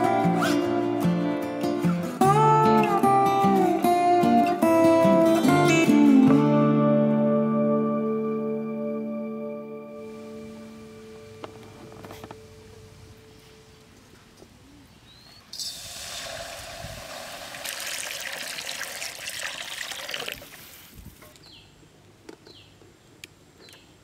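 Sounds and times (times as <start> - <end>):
water pouring into metal pan: 15.6 - 20.7.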